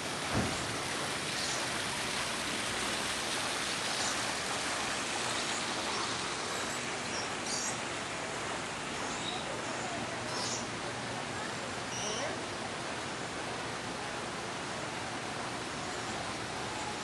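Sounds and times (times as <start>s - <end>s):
fountain water splashing: 0.0s - 17.0s.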